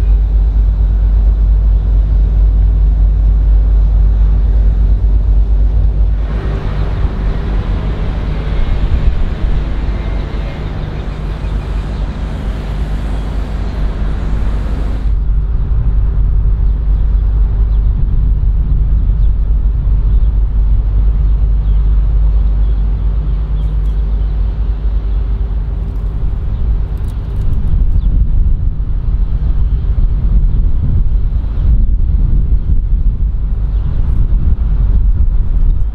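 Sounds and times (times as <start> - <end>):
low engine rumble: 0.0 - 35.9
high hiss: 6.1 - 15.2.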